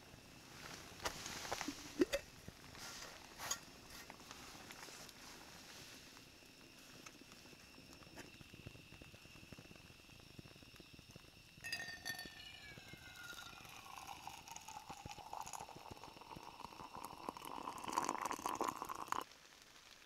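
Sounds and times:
tea pouring into a mug: 9.5 - 20.0.

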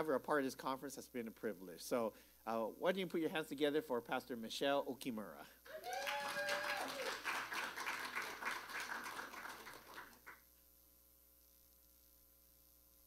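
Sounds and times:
faint electrical hum: 0.0 - 13.0
audience applauding: 5.7 - 10.4.

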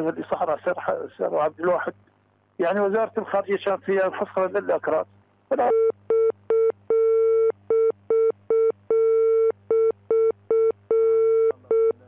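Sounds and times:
speech: 2.6 - 5.8.

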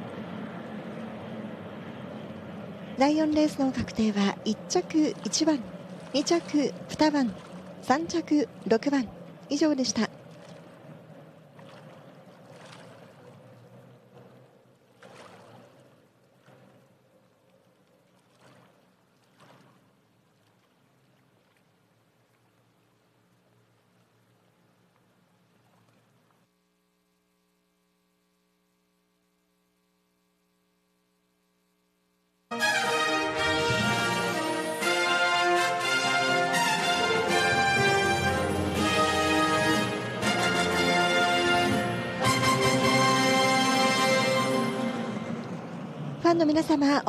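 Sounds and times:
low steady hum: 0.0 - 47.0
music: 32.5 - 45.4.

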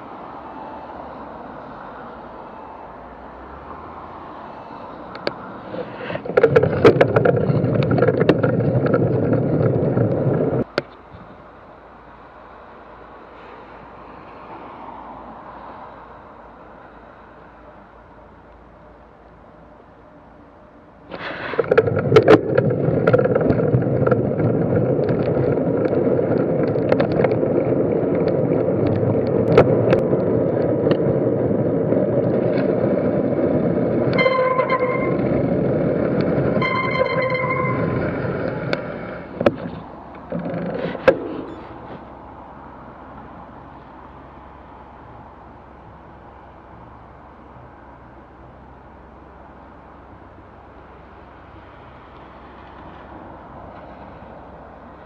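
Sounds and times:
road noise: 0.0 - 55.0
wind noise: 5.1 - 11.4, 21.1 - 43.4
horn toots: 34.1 - 35.6, 36.5 - 38.6.

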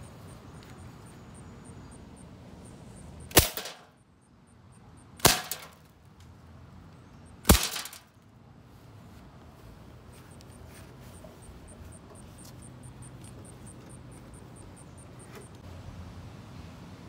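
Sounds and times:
bb gun shots: 3.3 - 3.9, 5.2 - 5.8, 7.5 - 8.0.

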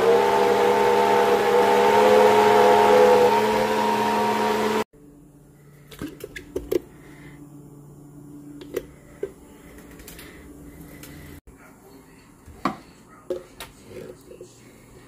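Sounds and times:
blender running: 0.0 - 4.9.

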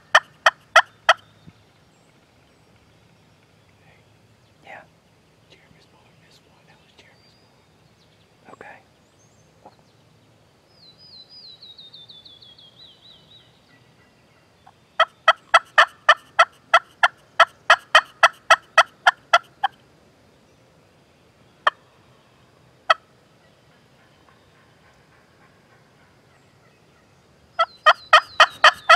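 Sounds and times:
songbird trill: 0.0 - 28.9
turkey yelping: 0.1 - 1.2, 15.0 - 19.8, 27.0 - 28.9.

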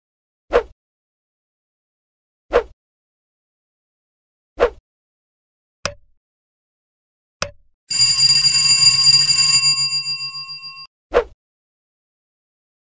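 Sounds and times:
notification bell trilling: 7.9 - 10.9.

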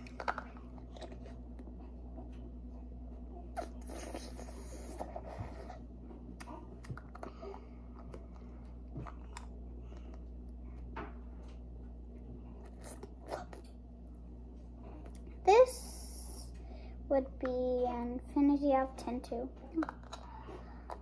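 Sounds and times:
sucking and chewing jelly: 0.0 - 2.0, 3.5 - 10.9, 12.4 - 13.8, 19.7 - 21.0
steady low hum: 0.0 - 21.0.

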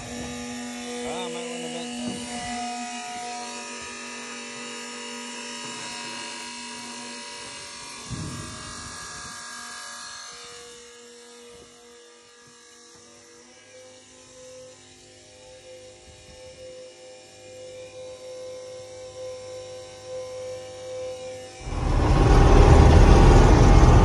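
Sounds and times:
electric pump humming: 0.0 - 9.2, 21.6 - 24.0.

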